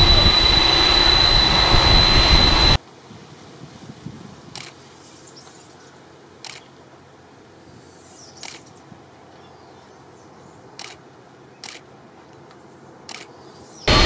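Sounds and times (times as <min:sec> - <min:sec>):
low outdoor rumble: 0:00.0 - 0:02.8.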